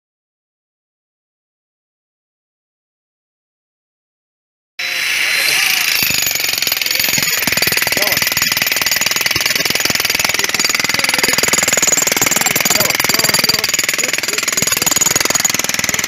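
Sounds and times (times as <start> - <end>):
powered tool hammering: 4.8 - 16.0.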